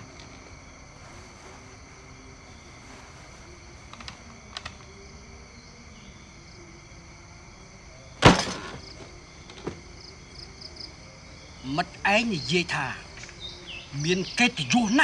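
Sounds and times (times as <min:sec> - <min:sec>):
night insects chirring: 0:00.0 - 0:15.0
faint clicks: 0:03.9 - 0:04.9.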